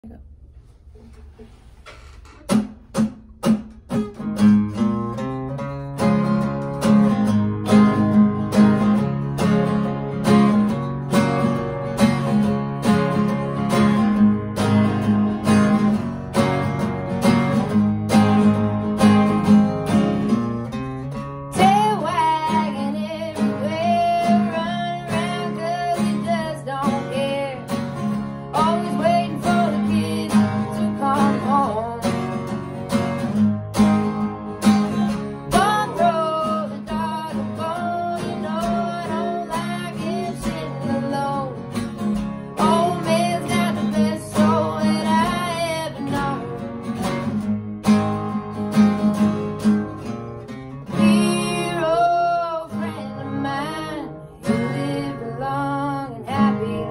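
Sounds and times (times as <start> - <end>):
acoustic guitars strummed: 0.6 - 56.9
woman singing: 21.5 - 32.5, 35.4 - 47.2, 50.9 - 56.9.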